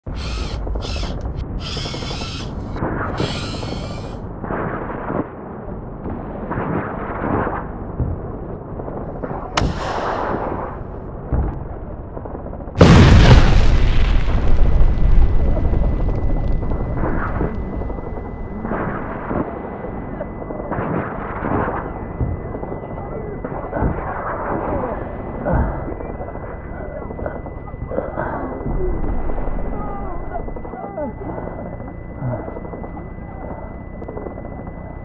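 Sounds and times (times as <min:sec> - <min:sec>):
dull noisy swells: 0:00.1 - 0:07.1, 0:07.7 - 0:35.0
sharp crack: 0:09.1 - 0:11.5
loud explosion: 0:09.2 - 0:19.4.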